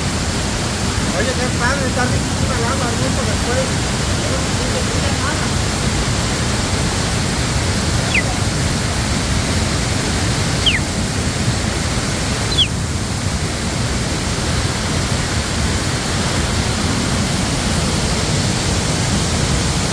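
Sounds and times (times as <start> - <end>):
waterfall rushing into pool: 0.0 - 19.9
short high falling whistles: 8.0 - 8.4, 10.6 - 10.9, 12.5 - 12.7.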